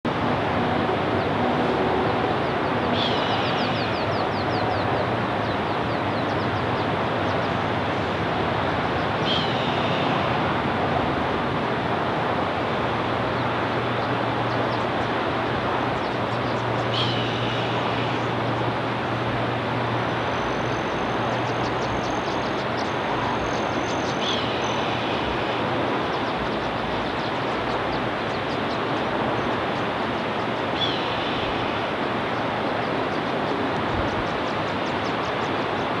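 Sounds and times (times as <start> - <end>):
loud steady rushing noise: 0.0 - 36.0.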